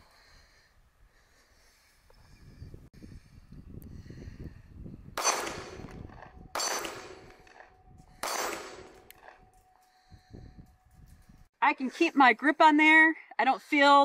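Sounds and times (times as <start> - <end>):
pistol shots echoing: 5.2 - 6.0, 6.6 - 7.6, 8.2 - 9.1.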